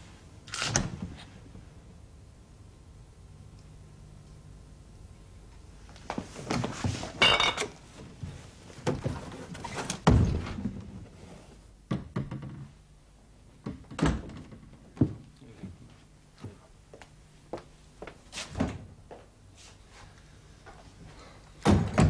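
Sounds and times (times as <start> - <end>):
glass bottles clattering: 7.2 - 7.7
door thud: 21.6 - 22.0.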